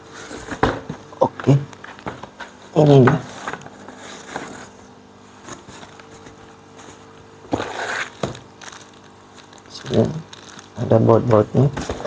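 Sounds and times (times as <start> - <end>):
cardboard box scraping: 7.5 - 8.3.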